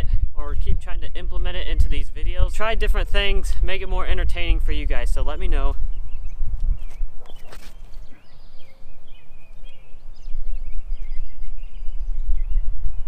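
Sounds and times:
wind rumbling on microphone: 0.0 - 13.0
small birds chirping: 4.8 - 13.0
disc thrown with a swish: 6.8 - 8.1.

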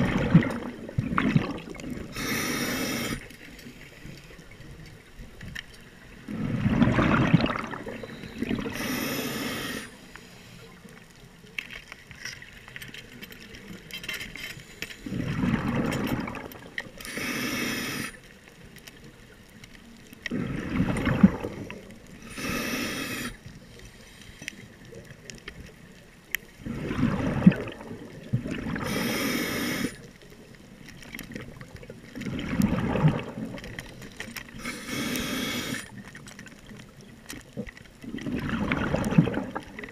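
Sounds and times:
exhaled bubbles gushing: 0.0 - 3.3, 6.1 - 9.9, 15.0 - 17.3, 20.3 - 23.4, 26.6 - 30.0, 31.0 - 36.9, 37.5 - 39.9
scuba regulator inhale: 2.0 - 4.0, 7.8 - 10.8, 17.0 - 18.2, 22.2 - 24.6, 28.8 - 30.1, 34.0 - 36.0.

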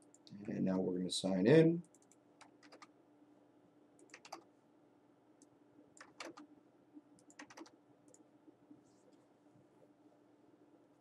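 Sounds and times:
faint steady hum: 0.0 - 11.0
keyboard typing: 1.8 - 2.9, 4.0 - 4.5, 6.0 - 6.5, 7.2 - 8.2.

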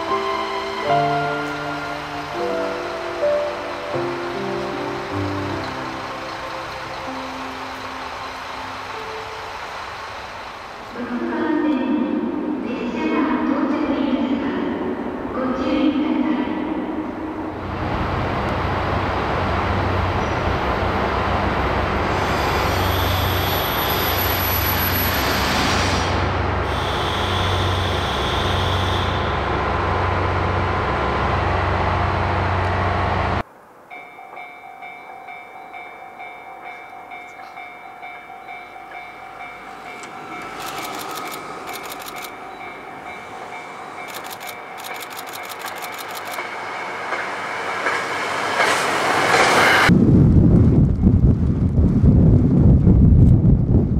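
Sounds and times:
diesel train engine drone: 0.0 - 33.5, 35.7 - 53.9
rapid clicking: 44.1 - 46.5.

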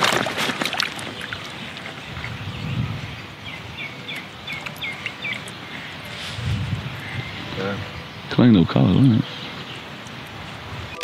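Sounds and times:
small bird chirping: 2.2 - 8.3.

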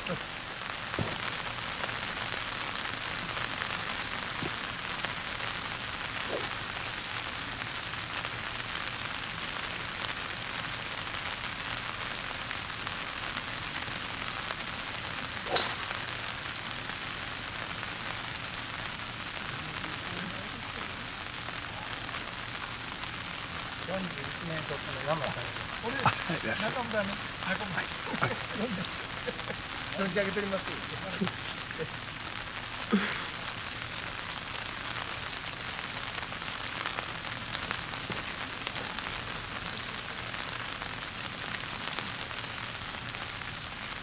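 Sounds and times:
steady rain: 0.0 - 44.0
golf ball struck by driver: 15.4 - 16.3.

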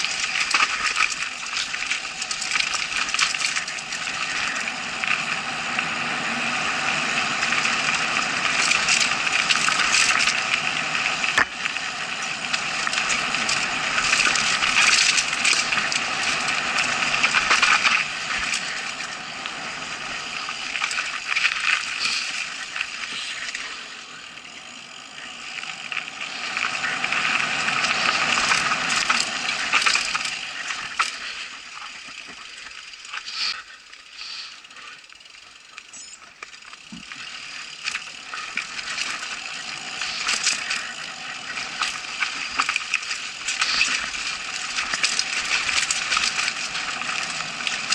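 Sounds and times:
small knocks from bike: 0.0 - 4.6, 11.3 - 19.1, 35.3 - 47.9
mountain bike rattling on dirt trail: 0.0 - 47.9.

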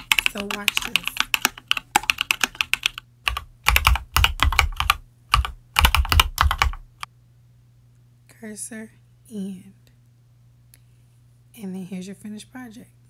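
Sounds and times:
mechanical keyboard typing: 0.0 - 7.1.

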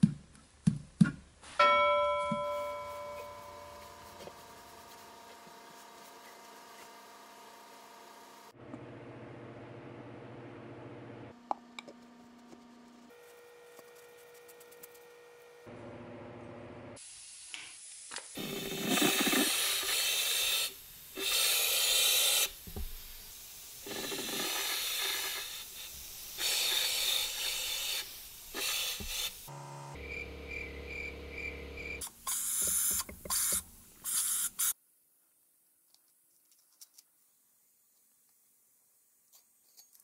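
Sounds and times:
spray gun hissing air: 19.3 - 29.5.

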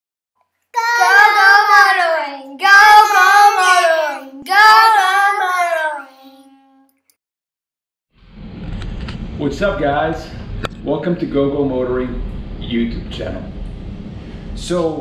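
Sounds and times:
child singing: 0.8 - 6.8.

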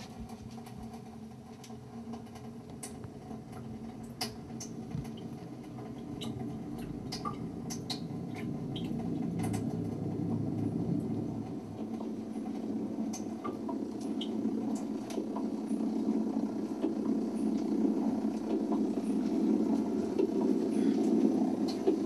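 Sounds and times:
small clicks and crackles: 0.0 - 9.7
low synthesizer drone: 3.2 - 22.0.

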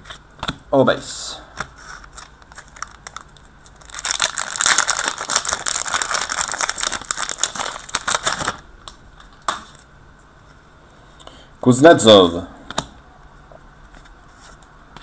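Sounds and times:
card pack wrapper crinkling: 2.0 - 8.6.

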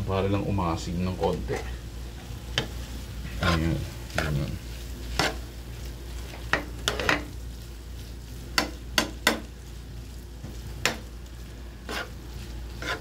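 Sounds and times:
food sizzling in pan: 0.0 - 13.0
metal spoon scraping frying pan: 2.6 - 4.4, 5.1 - 5.4, 6.5 - 7.3, 11.8 - 13.0.

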